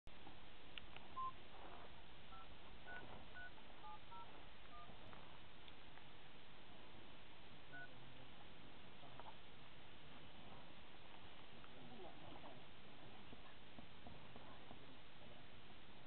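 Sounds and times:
faint steady hiss: 0.1 - 16.0
phone keypad dialing beeps: 1.2 - 1.4, 2.3 - 4.9, 7.7 - 7.9.

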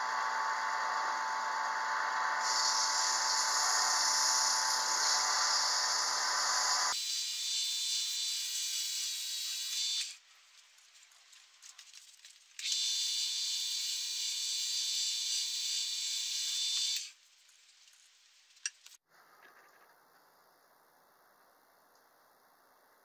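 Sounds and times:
wood lathe whining: 0.0 - 7.0
sandpaper hissing on wood: 2.4 - 7.0.

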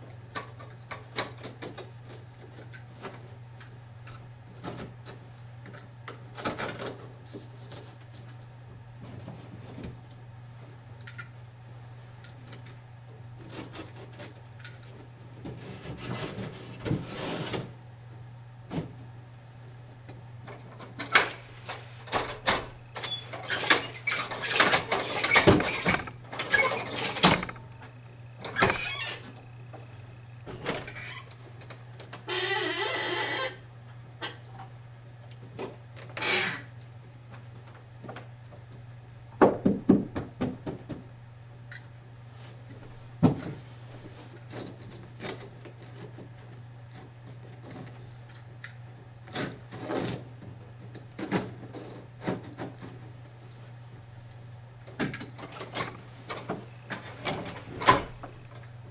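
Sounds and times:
steady low hum: 0.0 - 58.9
rasping scrape: 15.6 - 17.7.

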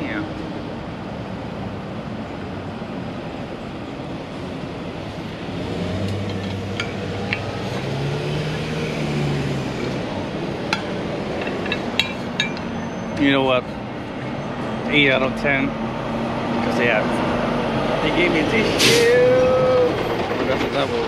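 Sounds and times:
street traffic noise: 0.0 - 21.0
car engine passing: 4.2 - 21.0.

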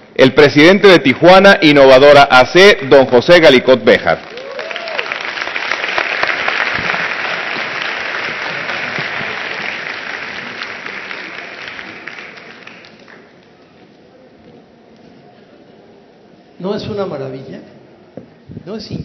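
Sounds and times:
audience applauding: 3.9 - 13.9.

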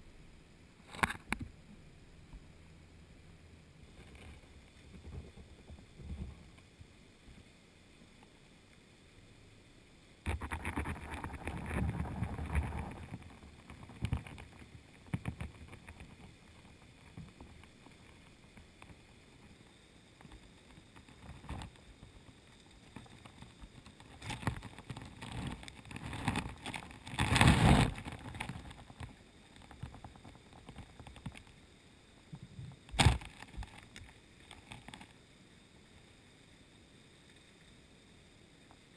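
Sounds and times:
faint steady underwater hiss: 0.0 - 38.9
rushes of water noise: 10.2 - 35.2.

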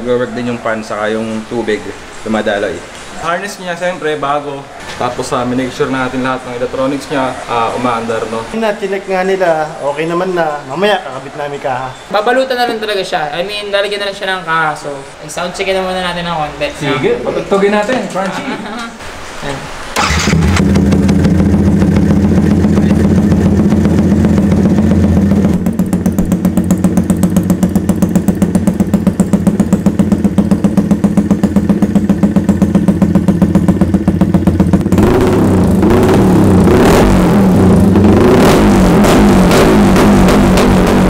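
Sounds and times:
motorcycle engine idling and revving: 20.0 - 41.0.

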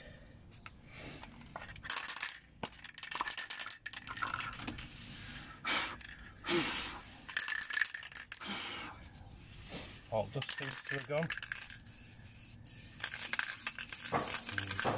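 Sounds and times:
spray can ball rattling: 1.6 - 4.9, 7.2 - 8.4, 10.3 - 14.9.

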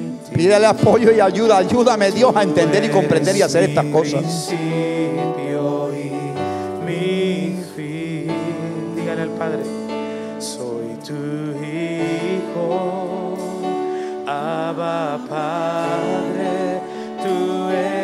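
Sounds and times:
band accompaniment: 0.0 - 5.3
man singing worship song: 0.0 - 18.0.

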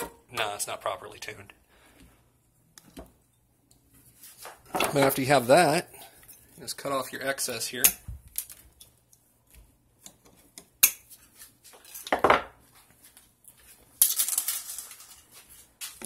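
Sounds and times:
rustling handling noise: 12.7 - 16.0.

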